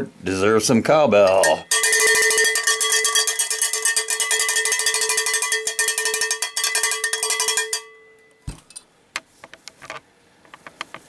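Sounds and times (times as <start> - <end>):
cowbell strikes: 1.3 - 8.4.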